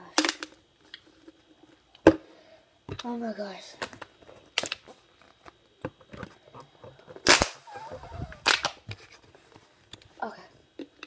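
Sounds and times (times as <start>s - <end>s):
plastic bottle crackling and snapping: 4.6s - 7.6s, 8.4s - 9.0s.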